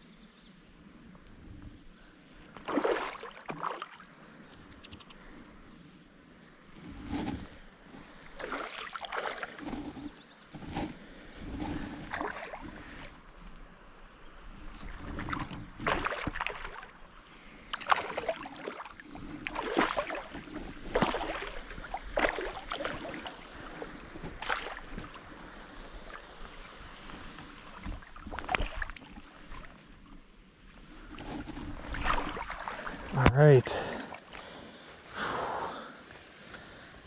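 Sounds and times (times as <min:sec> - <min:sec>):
fish splashing in water: 0:02.6 - 0:04.1, 0:15.0 - 0:17.0, 0:17.7 - 0:25.3.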